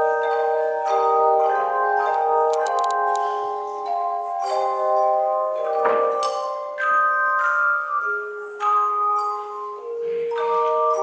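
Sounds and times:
handchimes ringing: 0.0s - 11.0s
short high clicks: 2.5s - 3.2s.

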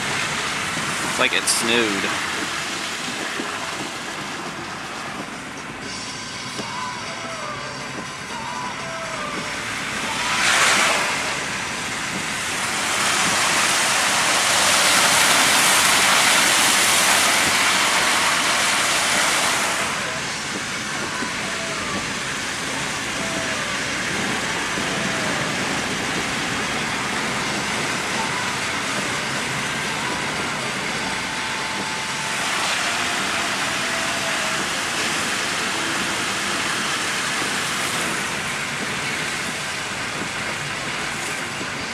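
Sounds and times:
tyre and road noise: 0.0s - 41.9s
tyres hissing on slush: 9.7s - 41.5s.

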